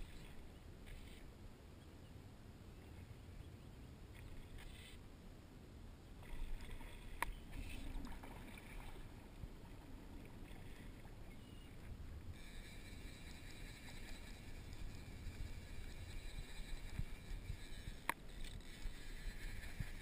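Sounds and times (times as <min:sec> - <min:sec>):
water sloshing: 0:06.2 - 0:12.0
water splashing: 0:06.2 - 0:12.0.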